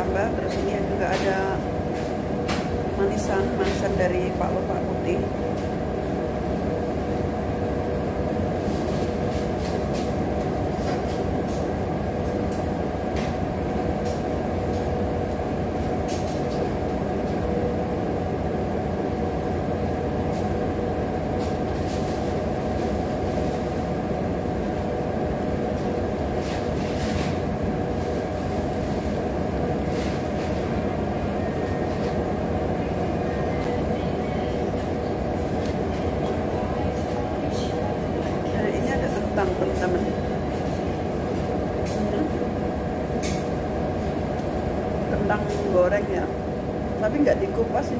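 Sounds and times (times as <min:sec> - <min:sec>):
mechanical room hum with whine: 0:00.0 - 0:47.9.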